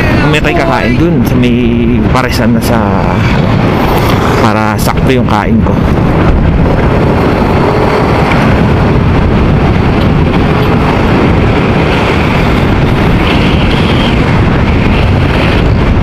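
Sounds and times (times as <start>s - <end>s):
road noise: 0.0s - 16.0s
wind noise on microphone: 0.0s - 16.0s.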